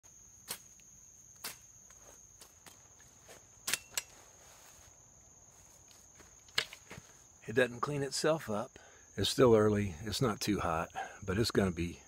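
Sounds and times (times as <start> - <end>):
insects droning: 0.0 - 12.0
footsteps snapping twigs: 0.4 - 4.4, 5.8 - 7.2.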